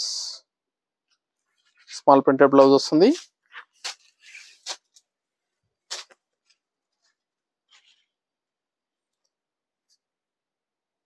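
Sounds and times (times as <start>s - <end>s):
fabric rustling and swishing: 3.1s - 5.0s
cloth snapping: 5.9s - 6.2s.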